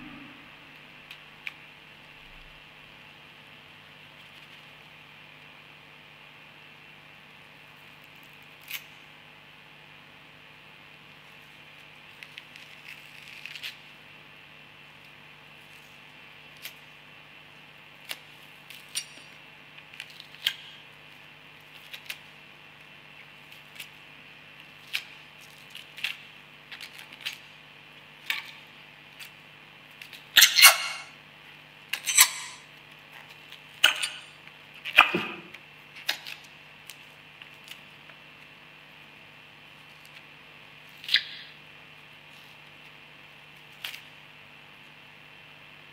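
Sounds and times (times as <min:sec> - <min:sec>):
faint steady hum: 0:00.0 - 0:45.9
onion skin crackling and tearing: 0:12.1 - 0:13.9, 0:21.2 - 0:22.3, 0:24.6 - 0:27.4, 0:43.7 - 0:44.1.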